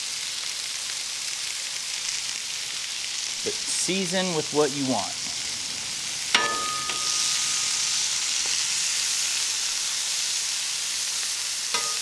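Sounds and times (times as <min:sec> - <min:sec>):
meat sizzling on a griddle: 0:00.0 - 0:12.0
metal spatula clicking on griddle: 0:11.7 - 0:12.0.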